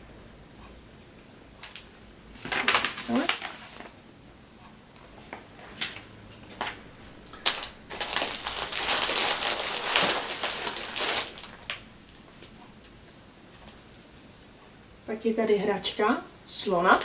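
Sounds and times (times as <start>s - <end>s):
packaging crinkling and rustling: 1.6s - 4.0s, 5.2s - 12.6s.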